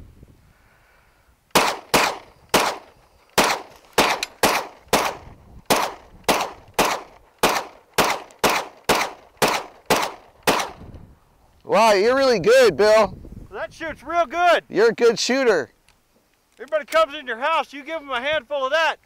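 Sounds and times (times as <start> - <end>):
pistol shots: 1.5 - 10.8.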